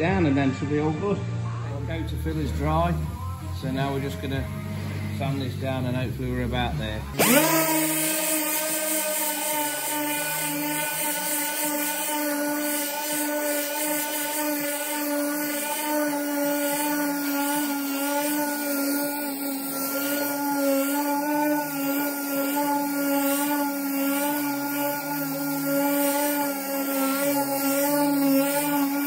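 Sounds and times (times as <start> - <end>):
orbital sander whining: 1.7 - 29.0.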